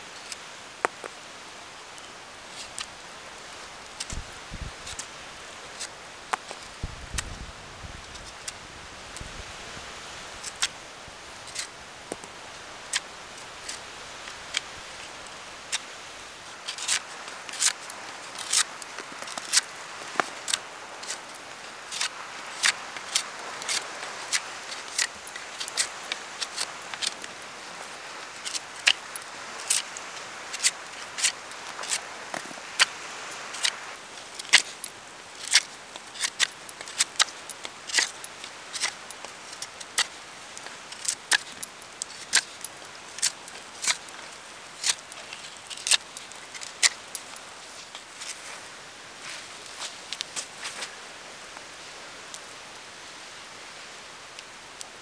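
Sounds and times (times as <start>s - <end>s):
campfire crackling and popping: 0.2s - 48.6s, 49.2s - 52.8s.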